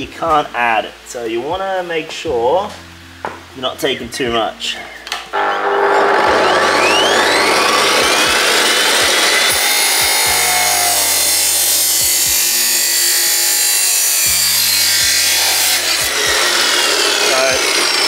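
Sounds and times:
chop saw grinding through steel: 5.4 - 18.0.

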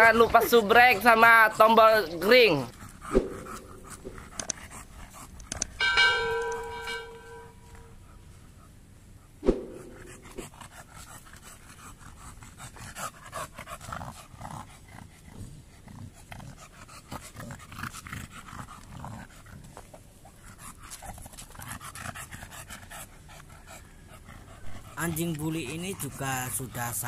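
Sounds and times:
dog panting hard: 0.0 - 27.0
short chime: 5.8 - 7.7.

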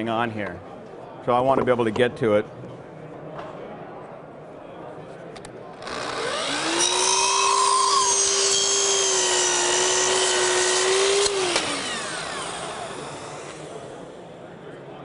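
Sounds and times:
miter saw cutting wood: 5.8 - 14.1.

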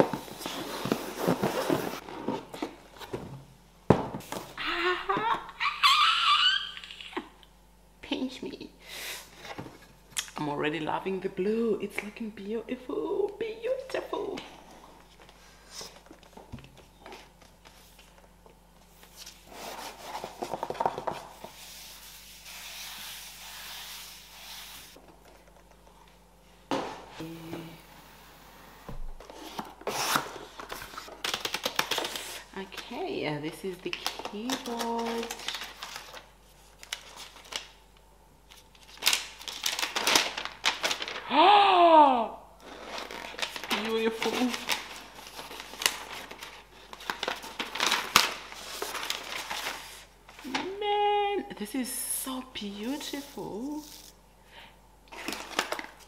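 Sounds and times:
cardboard scraping and rustling: 0.0 - 3.4
plastic wrap crinkling: 29.5 - 37.8, 38.5 - 41.4, 42.6 - 50.8, 55.1 - 56.0.

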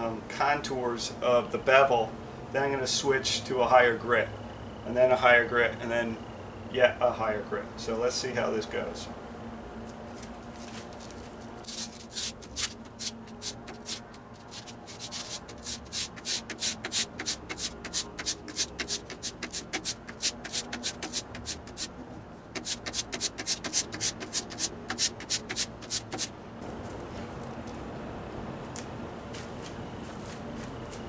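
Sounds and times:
blade scraping on sandpaper: 11.6 - 22.0, 22.6 - 26.3.

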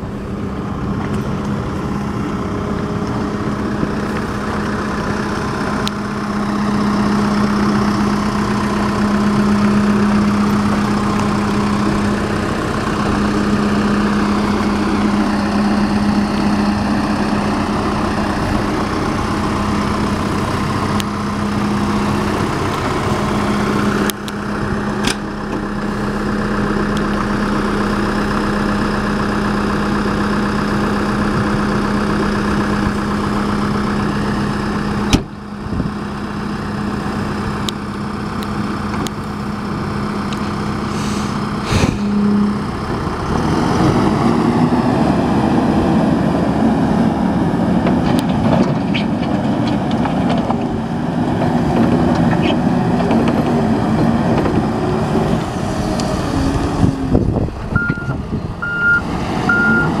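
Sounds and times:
diesel engine idling: 0.0 - 60.0.

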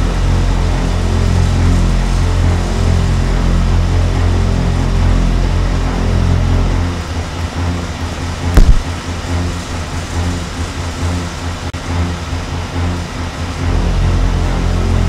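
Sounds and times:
low rumbling drone: 0.0 - 15.0
loud thud: 8.5 - 8.9.

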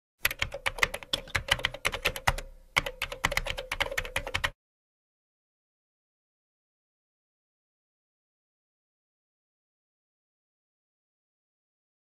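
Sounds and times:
keyboard typing: 0.2 - 4.6.

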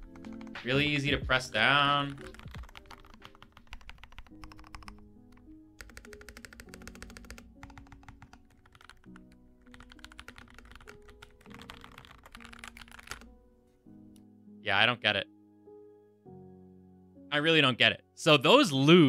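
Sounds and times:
mechanical keyboard typing: 0.0 - 0.9, 2.0 - 13.3
quiet background music: 0.0 - 19.0.

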